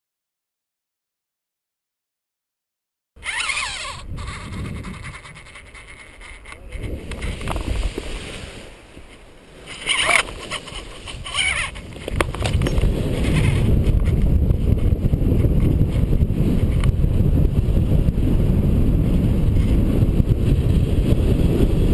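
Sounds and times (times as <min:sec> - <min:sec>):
rustling: 0:03.2 - 0:14.2
wind rushing over microphone: 0:03.2 - 0:21.9.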